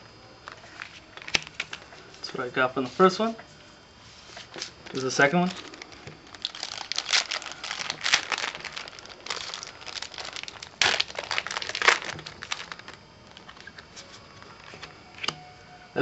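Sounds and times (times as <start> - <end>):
wrapper crinkling: 0.5 - 1.8, 4.4 - 15.3.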